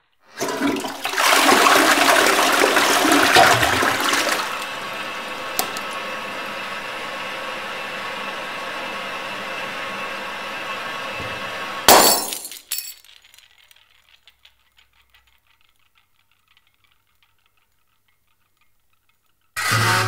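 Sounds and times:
pieces clinking: 11.9s - 15.2s.

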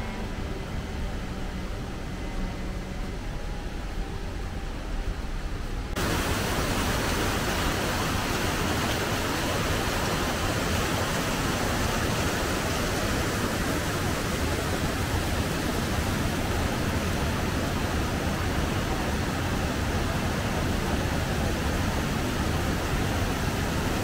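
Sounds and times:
stream rushing over rocks: 6.0s - 24.0s.

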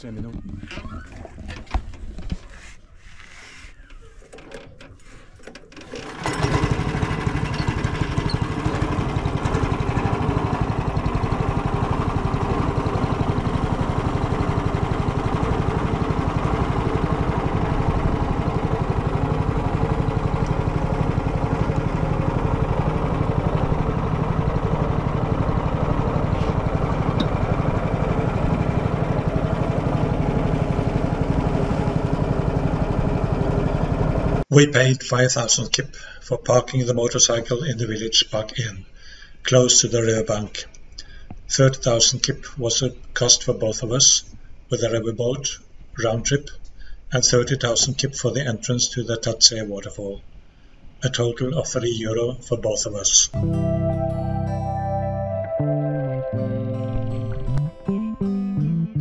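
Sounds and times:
boat engine running: 5.8s - 34.4s.

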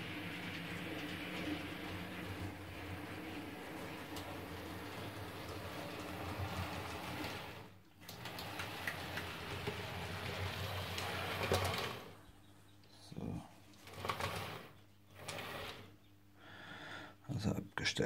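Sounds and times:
model train electric hum: 0.0s - 12.2s
wheels clicking over rail joints: 0.0s - 12.2s.

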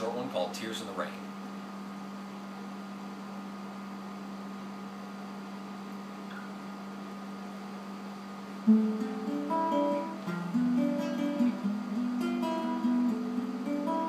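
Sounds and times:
faint room hiss: 0.0s - 14.0s.

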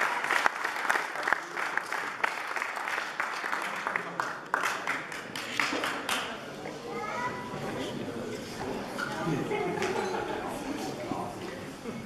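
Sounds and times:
audience applauding: 0.0s - 6.3s.

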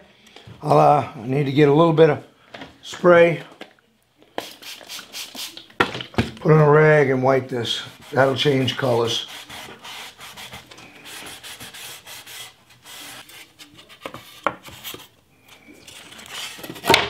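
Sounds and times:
rag rubbing on wood: 7.7s - 14.5s.

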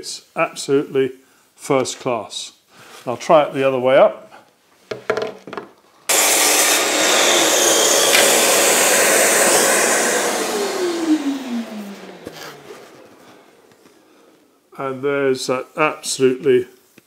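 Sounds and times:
mitre saw cutting chipboard: 6.1s - 13.6s
saw motor winding down whine: 6.1s - 13.8s.

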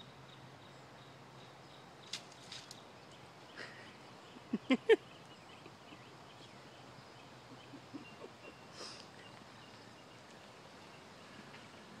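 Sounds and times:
brief rustle: 2.0s - 2.8s.

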